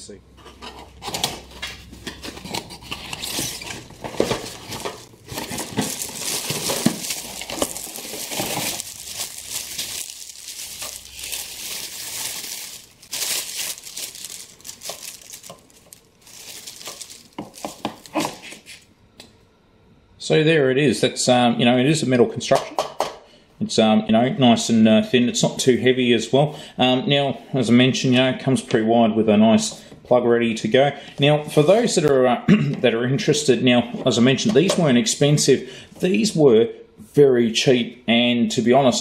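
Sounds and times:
cardboard and plastic rustling: 0.4s - 18.8s.

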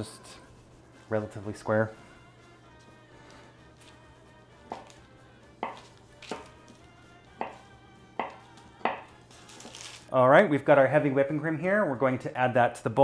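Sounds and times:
knife knocking on wooden board: 7.4s - 7.6s, 8.2s - 9.1s.

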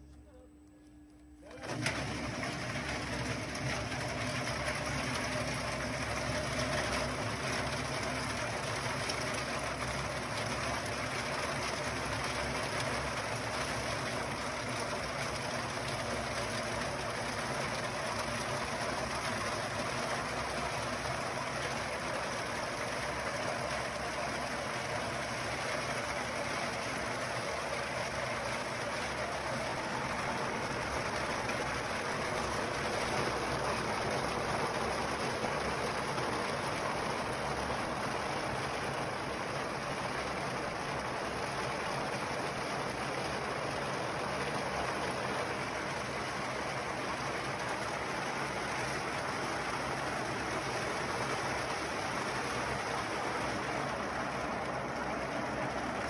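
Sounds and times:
walnut hulling machine running: 1.4s - 56.0s.

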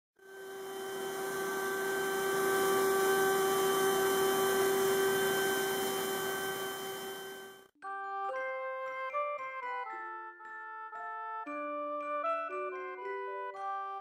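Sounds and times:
carving machine motor whine: 0.2s - 7.6s.

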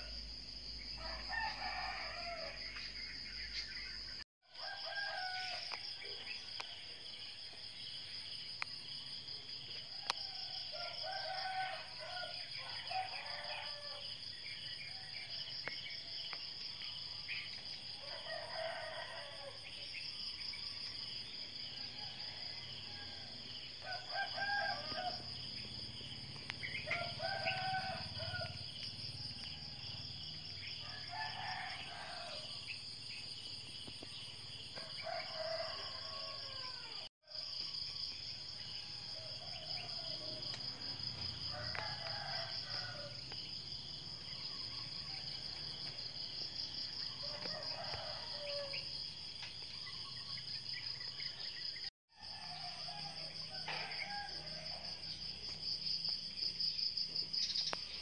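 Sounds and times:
rooster crowing: 1.0s - 2.7s, 4.5s - 5.8s, 9.9s - 14.1s, 18.0s - 19.6s, 21.8s - 25.8s, 26.6s - 32.6s, 34.8s - 37.1s, 38.8s - 43.4s, 46.1s - 49.0s, 52.1s - 55.3s.

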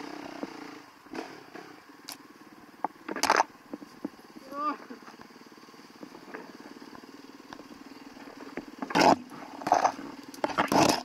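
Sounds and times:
engine throttle bursts: 0.0s - 2.0s
motorcycle engine running: 0.0s - 11.0s.

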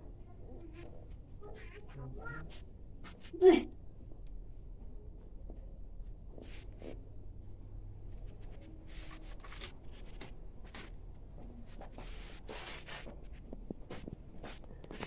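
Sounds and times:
rustling and scraping of sticks: 8.0s - 11.0s, 11.6s - 15.0s.

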